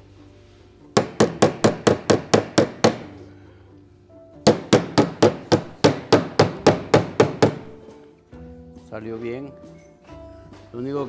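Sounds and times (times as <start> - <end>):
hammer tapping sheet metal: 1.0 - 3.2, 4.5 - 7.8.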